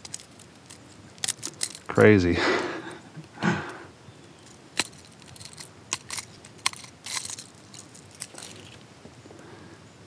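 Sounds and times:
fish handling noise: 0.0s - 2.0s, 4.4s - 8.9s
metal pliers clicking and crunching: 0.0s - 2.0s, 4.4s - 8.8s.

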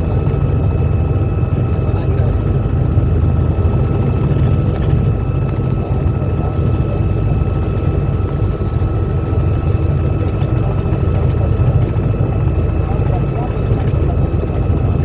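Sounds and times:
helicopter rotor drone: 0.0s - 15.0s.

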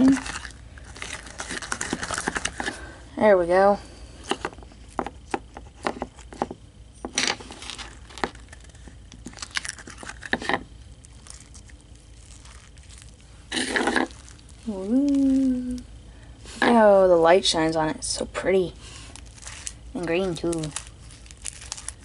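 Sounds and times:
slime crackling while kneaded: 0.0s - 2.6s, 7.6s - 17.0s, 18.6s - 22.0s
slime squelch: 7.5s - 16.9s, 18.8s - 22.0s.

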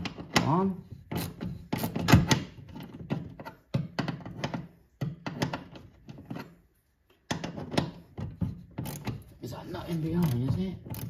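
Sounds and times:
socket ratchet clicking: 10.1s - 11.0s.

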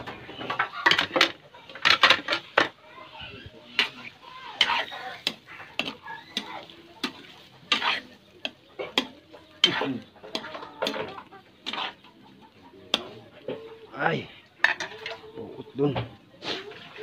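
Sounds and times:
metal spatula scraping a wok: 0.0s - 12.1s, 14.6s - 15.2s.

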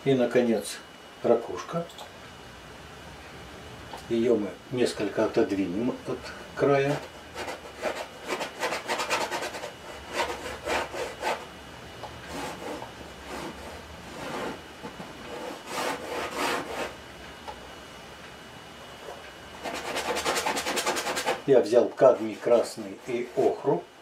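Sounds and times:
paintbrush scrubbing on canvas: 6.9s - 11.4s, 19.6s - 23.7s.

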